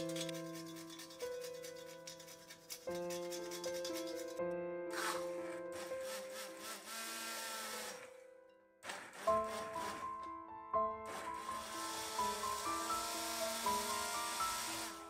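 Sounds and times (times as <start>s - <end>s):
grater scraping: 0.0s - 4.4s
soft background music: 0.0s - 15.0s
immersion blender running: 5.0s - 8.1s, 8.8s - 10.0s, 11.1s - 15.0s.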